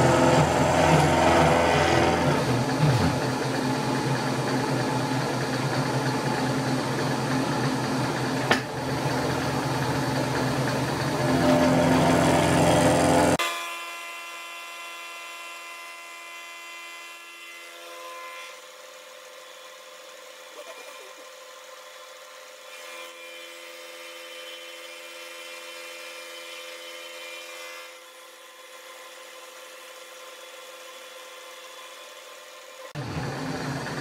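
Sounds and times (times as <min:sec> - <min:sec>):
cutter facing metal: 0:00.0 - 0:03.5
milling machine spindle whine: 0:00.0 - 0:13.4.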